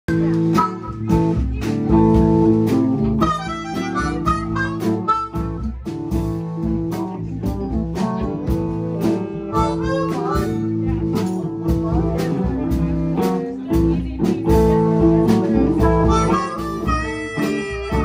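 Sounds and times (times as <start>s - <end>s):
guitar: 0.0s - 18.0s
steady drum beat: 0.1s - 18.0s
harmonica: 0.5s - 1.4s, 3.2s - 5.9s, 9.0s - 10.9s, 15.6s - 18.0s.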